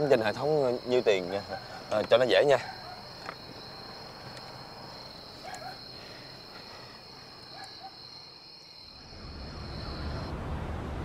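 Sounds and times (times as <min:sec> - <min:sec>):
crickets chirring: 0:00.0 - 0:10.3.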